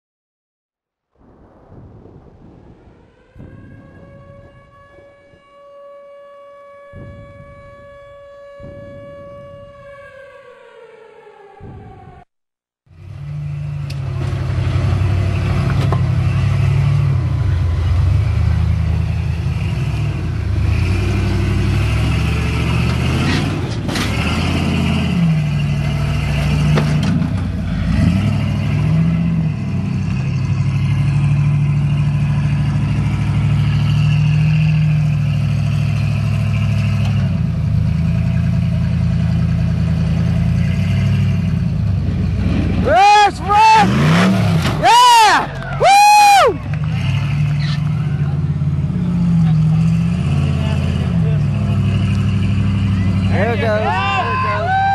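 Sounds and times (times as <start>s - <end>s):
engine revving hard: 13.1s - 45.2s, 46.4s - 54.4s.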